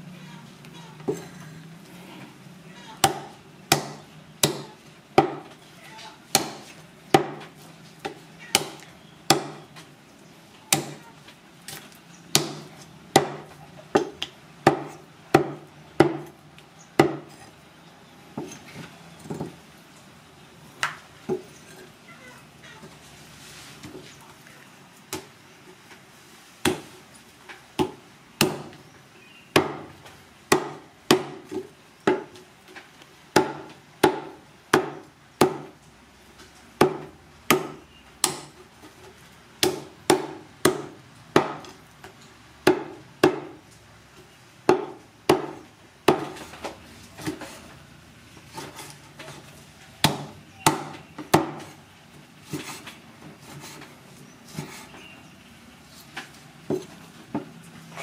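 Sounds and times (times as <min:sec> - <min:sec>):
knife chopping meat on wood: 0:08.6 - 0:09.7, 0:29.5 - 0:29.9, 0:30.5 - 0:32.3, 0:33.4 - 0:35.7, 0:39.6 - 0:41.7, 0:42.6 - 0:43.6, 0:44.7 - 0:46.4.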